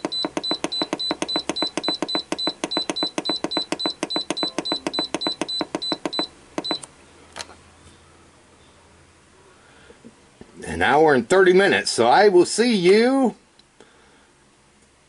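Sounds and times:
control panel short beeps: 0.0 - 6.9.

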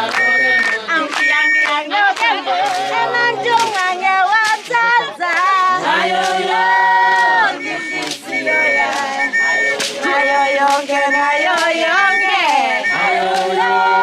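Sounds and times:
women singing in chorus: 0.0 - 14.0.

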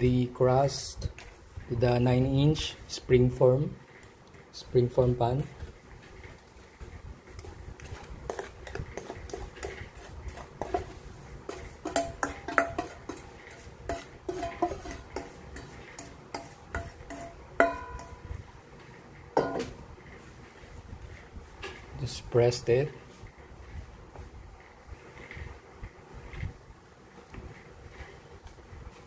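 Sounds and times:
spatula scraping a metal bowl: 0.0 - 18.3.

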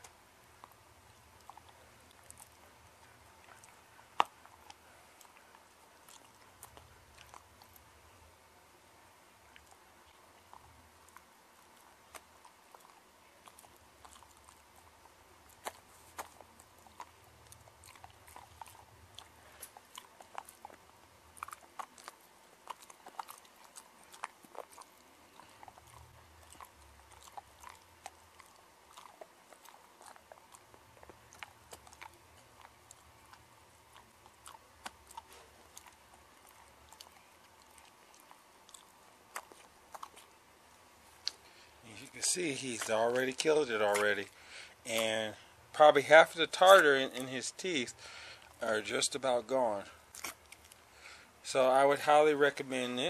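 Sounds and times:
dog chewing hard treat: 9.5 - 40.4, 41.1 - 45.4.

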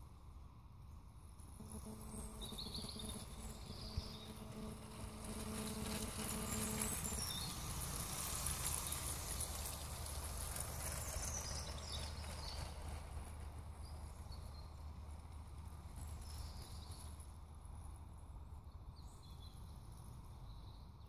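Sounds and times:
toy train motor buzz: 1.4 - 11.6
wheels rattling over track joints: 3.0 - 18.2.

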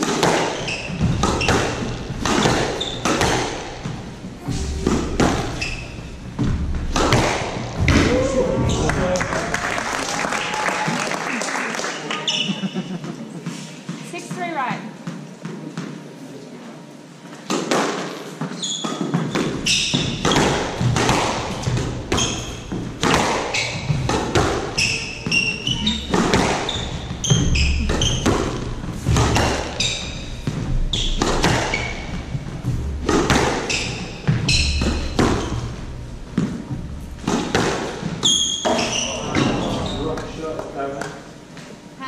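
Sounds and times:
squash ball cracking off rackets: 0.0 - 4.0, 4.8 - 8.8, 17.4 - 41.2
court shoes squeaking: 0.0 - 9.2, 12.1 - 16.1, 17.3 - 41.9.

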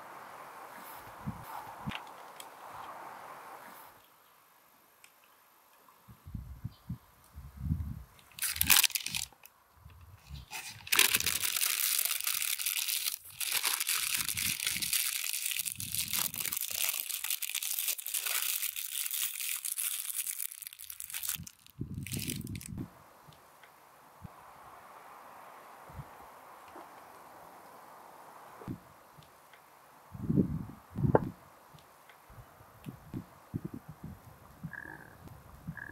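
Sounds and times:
paper crinkling: 8.3 - 9.5, 10.5 - 22.7.

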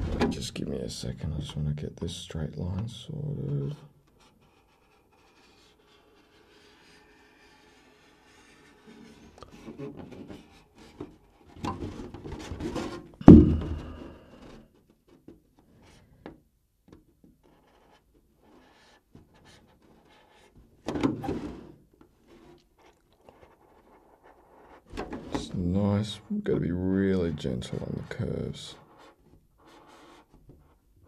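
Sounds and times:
sharp thump: 13.2 - 14.0.

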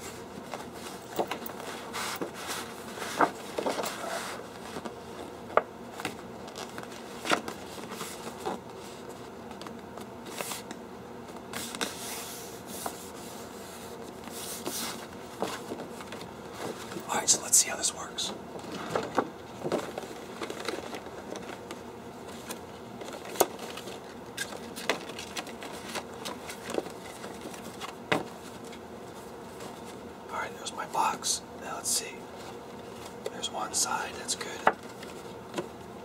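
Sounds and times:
posterboard rustling and scraping: 0.0 - 17.0, 18.6 - 30.0.

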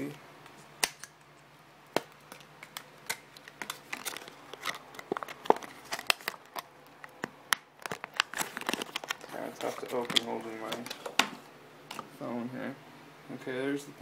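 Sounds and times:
stiff plastic crackling and clicking: 2.0 - 11.3.

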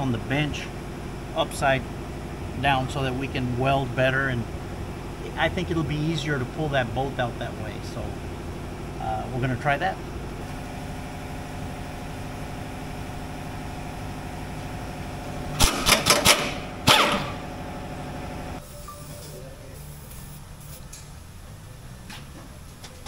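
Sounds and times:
steady machine hum: 0.0 - 22.0
pneumatic impact wrench hammering: 15.5 - 17.5.

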